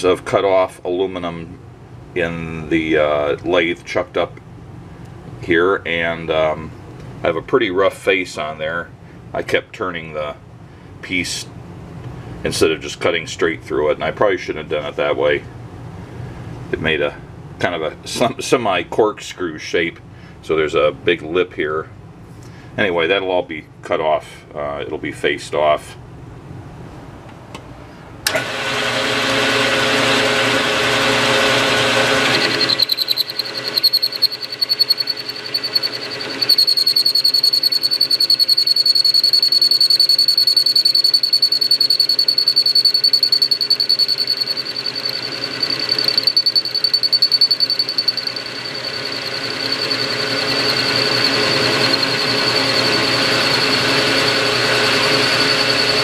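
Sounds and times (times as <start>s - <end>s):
metal lathe running: 28.3s - 56.0s
steady high whine: 29.3s - 56.0s.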